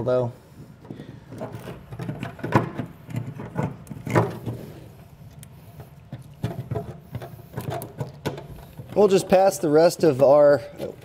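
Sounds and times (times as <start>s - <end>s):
plastic plug knocking and scraping: 0.8s - 4.8s, 5.7s - 9.0s.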